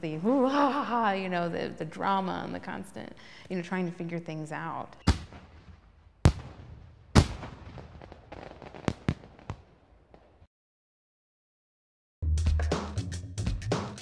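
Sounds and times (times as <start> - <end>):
fireworks bangs: 5.0 - 10.5
fireworks pops and crackling: 5.0 - 10.5.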